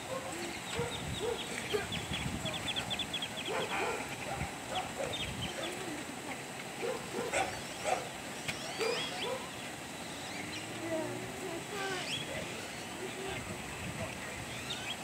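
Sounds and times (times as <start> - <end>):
birds chirping: 0.0 - 15.0
dog barking: 0.1 - 1.9, 3.5 - 5.7, 6.8 - 8.1, 8.8 - 9.5.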